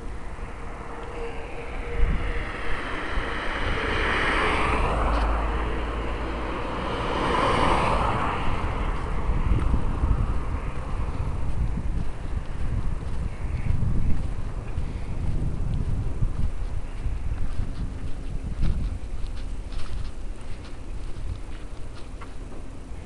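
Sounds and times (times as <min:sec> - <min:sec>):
vehicles passing: 0:00.0 - 0:23.0
wind rumbling on microphone: 0:00.0 - 0:23.0.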